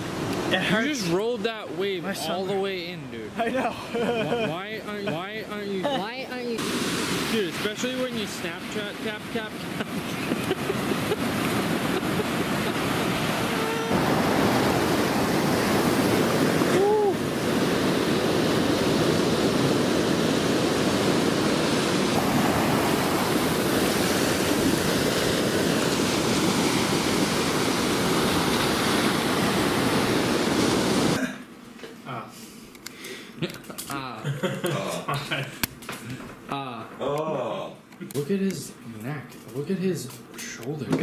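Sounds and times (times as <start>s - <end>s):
waves washing up shore: 0.0s - 3.2s, 3.9s - 31.2s.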